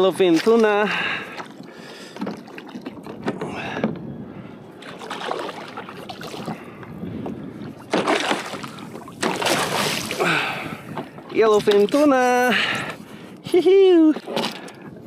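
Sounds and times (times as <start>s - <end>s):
water splashing against kayak: 0.0s - 13.3s, 14.0s - 15.0s
fish thrashing at surface: 7.9s - 10.7s.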